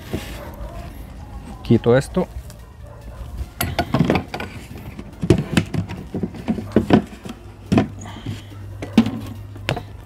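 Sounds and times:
plastic bucket lid popping off: 0:05.2 - 0:08.0.

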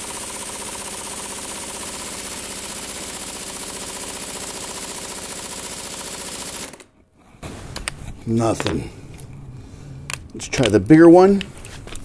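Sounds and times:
pneumatic impact wrench hammering: 0:00.0 - 0:06.9.

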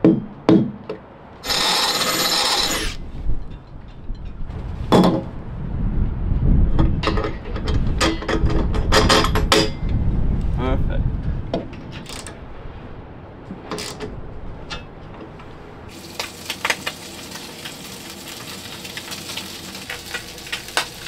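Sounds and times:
food sizzling in a pan: 0:15.9 - 0:21.0.

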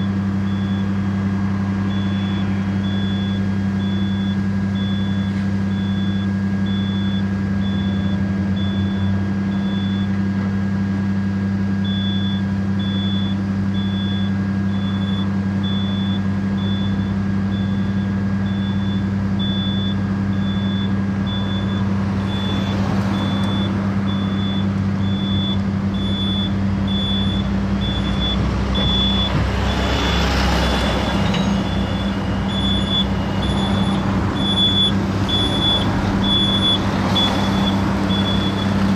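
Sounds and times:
passing traffic: 0:00.0 - 0:11.7, 0:14.4 - 0:38.9
diesel engine drone: 0:00.0 - 0:38.9
high warning beeper: 0:11.9 - 0:38.8.

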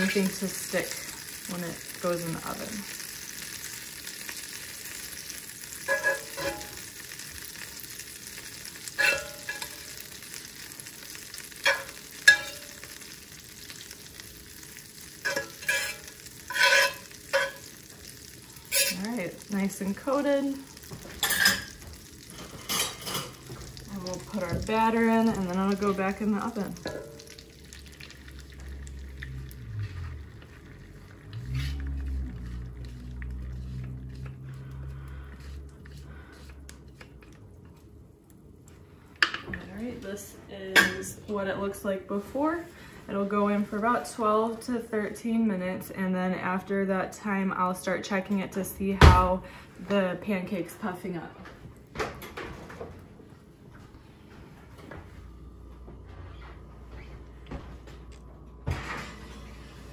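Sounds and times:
butter sizzling in skillet: 0:00.0 - 0:37.0
fork scraping pan: 0:05.8 - 0:06.8, 0:08.9 - 0:10.0, 0:15.2 - 0:17.7, 0:18.7 - 0:19.1, 0:22.4 - 0:23.4
low wavering hum: 0:22.9 - 0:37.7.

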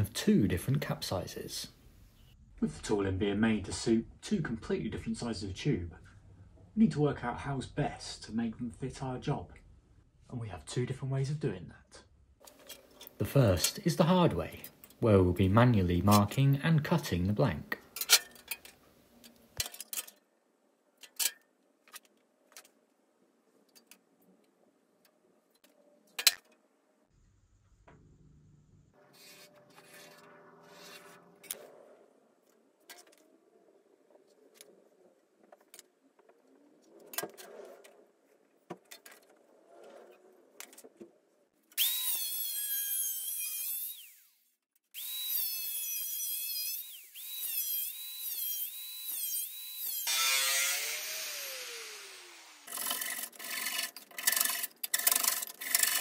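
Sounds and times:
angle grinder cutting metal: 0:41.8 - 0:56.0.

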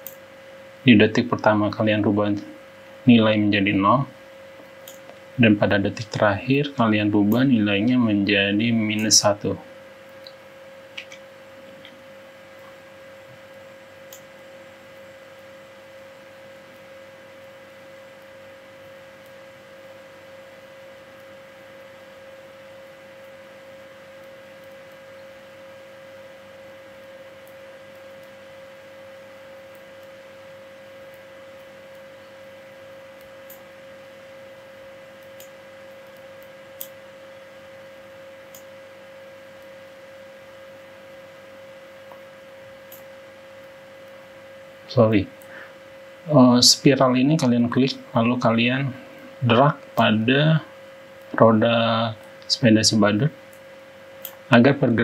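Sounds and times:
steady high whine: 0:00.0 - 0:55.0
faint clicks: 0:04.6 - 0:05.3, 0:13.5 - 0:14.3
faint hiss: 0:44.9 - 0:53.4.

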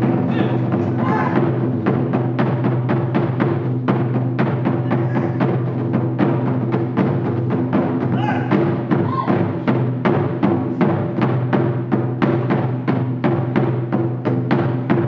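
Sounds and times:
taiko drums beating fast: 0:00.0 - 0:15.0.

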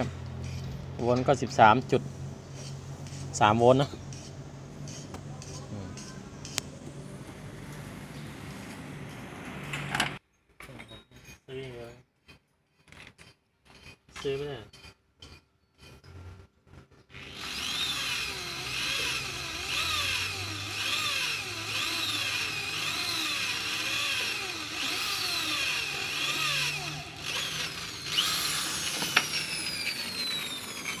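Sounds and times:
electric drill boring into steel: 0:17.1 - 0:31.0.

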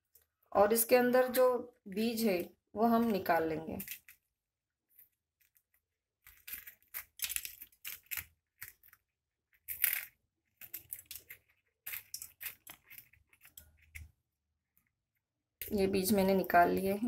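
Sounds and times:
knife scraping chilli seeds: 0:01.3 - 0:04.2, 0:06.2 - 0:14.2.

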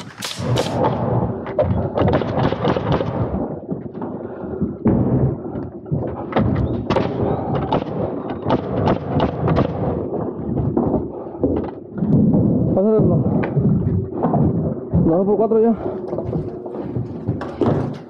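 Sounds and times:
nail gun shots: 0:00.0 - 0:01.0.

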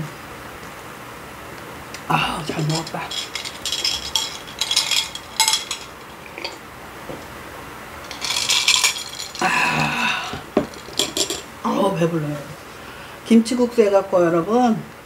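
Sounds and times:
ice cubes clinking in a glass: 0:02.5 - 0:06.6, 0:08.0 - 0:10.0, 0:10.6 - 0:11.5.

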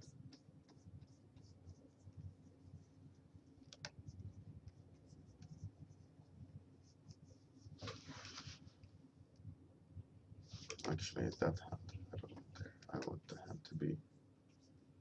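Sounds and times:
stylus scratching on drawing tablet: 0:00.0 - 0:06.2
faint room hum: 0:00.0 - 0:15.0.

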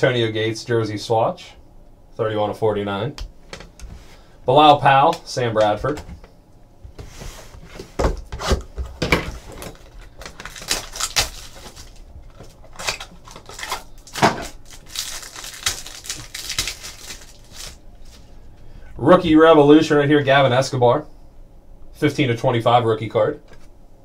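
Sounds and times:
plastic wrap crinkling and tearing: 0:09.4 - 0:18.2.

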